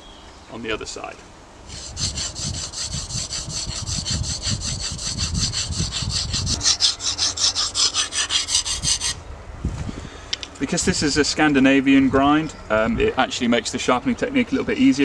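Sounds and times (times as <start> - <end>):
knife strokes on sharpening stone: 1.7 - 9.2.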